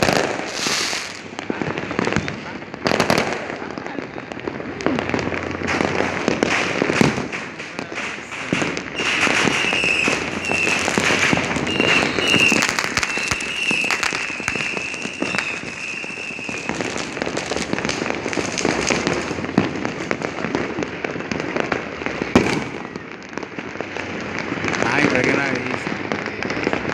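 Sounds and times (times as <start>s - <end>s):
fireworks and firecrackers banging: 0.0s - 26.9s
high wavering whistle: 9.5s - 10.8s, 11.6s - 16.6s.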